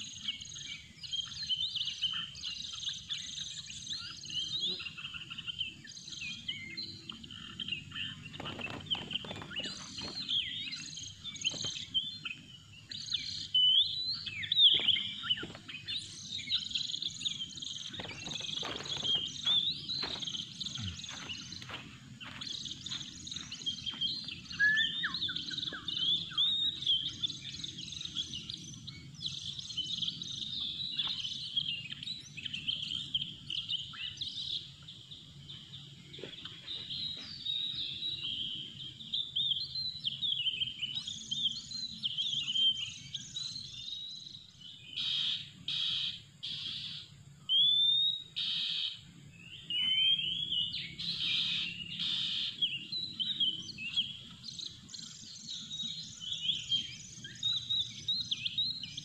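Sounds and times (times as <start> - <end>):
bird singing whistles and chirps: 0.0 - 59.0
harsh rasping bird calls: 6.3 - 27.3, 45.0 - 58.0.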